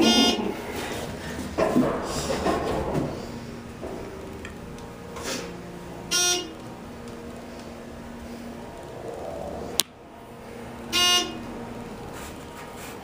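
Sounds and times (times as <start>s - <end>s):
elevator chime beeps: 0.0s - 0.6s, 6.1s - 6.6s, 10.9s - 11.5s
low steady hum: 0.0s - 13.0s.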